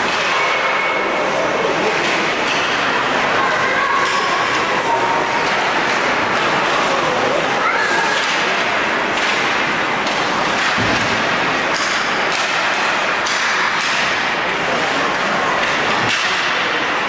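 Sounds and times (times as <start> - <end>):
arena noise: 0.0 - 17.0.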